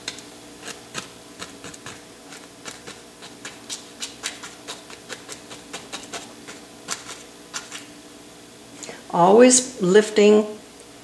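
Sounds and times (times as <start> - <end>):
paint brush scratching canvas: 0.6 - 7.9.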